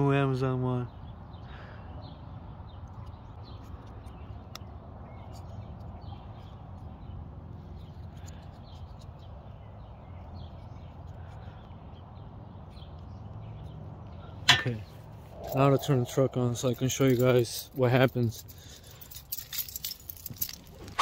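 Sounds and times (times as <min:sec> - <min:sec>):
faint birds chirping: 0:00.0 - 0:21.0
low steady rumble: 0:05.2 - 0:21.0.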